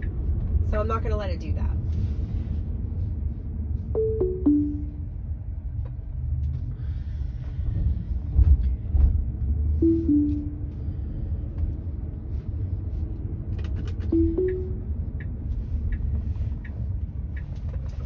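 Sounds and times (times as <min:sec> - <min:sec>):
low road rumble: 0:00.0 - 0:18.0
rising two-tone chime: 0:04.0 - 0:05.0, 0:09.8 - 0:10.7, 0:14.2 - 0:14.8.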